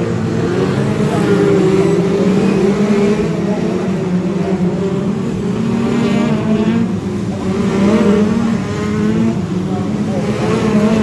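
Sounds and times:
racing car engines revving: 0.0s - 11.0s.

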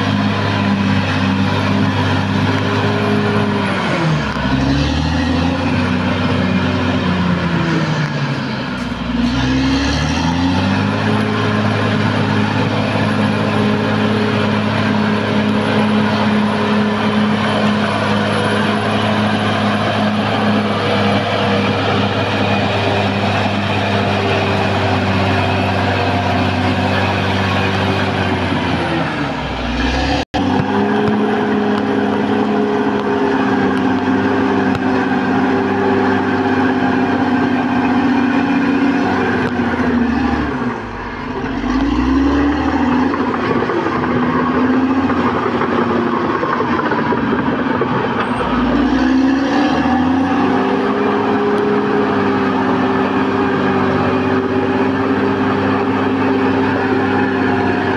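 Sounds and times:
bulldozer diesel engine running hard: 0.0s - 57.9s.

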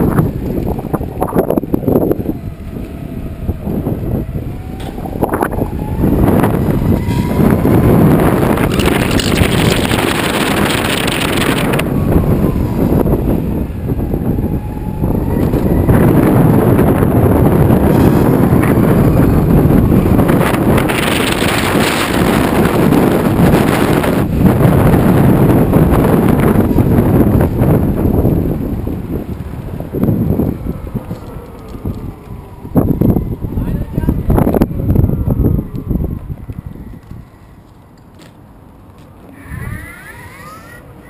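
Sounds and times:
wind rumble on microphone: 0.0s - 41.0s
faint whine: 29.7s - 41.0s.

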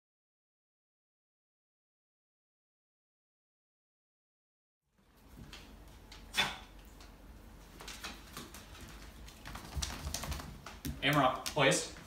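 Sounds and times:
dog claws clicking on wooden floor: 7.8s - 12.0s.

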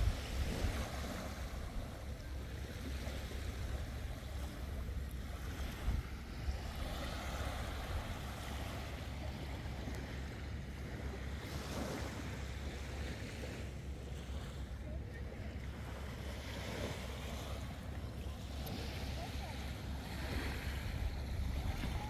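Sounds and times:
wind rumbling on microphone: 0.0s - 13.6s, 20.2s - 22.0s
sea waves washing in: 0.0s - 22.0s.

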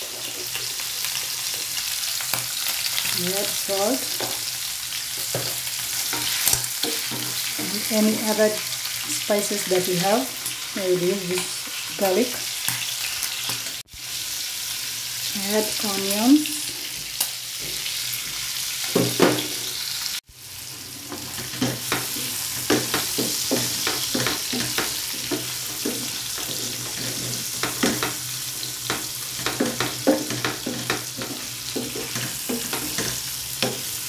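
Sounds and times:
liver and onions sizzling in a pan: 0.0s - 34.0s
spoon scraping and knocking a pan: 5.1s - 8.1s, 16.9s - 19.8s, 20.7s - 34.0s.

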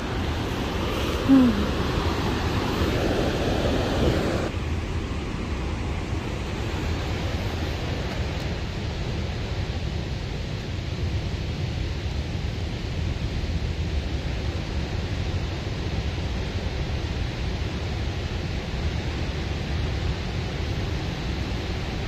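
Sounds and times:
river water rushing: 0.0s - 8.8s.

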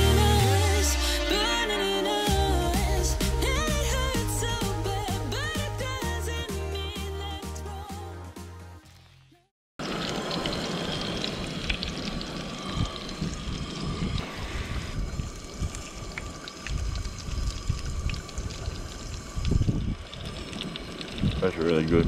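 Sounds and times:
wind buffeting microphone: 11.5s - 22.0s.

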